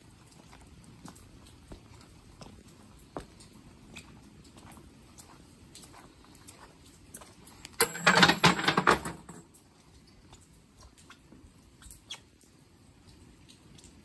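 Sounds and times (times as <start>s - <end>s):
coins clattering into wooden box: 7.8s - 9.4s.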